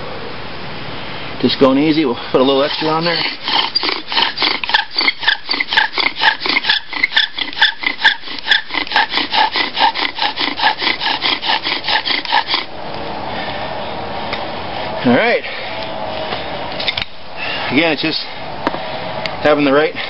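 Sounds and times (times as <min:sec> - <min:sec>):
wooden spindle squeaking and rasping: 0:02.4 - 0:12.7.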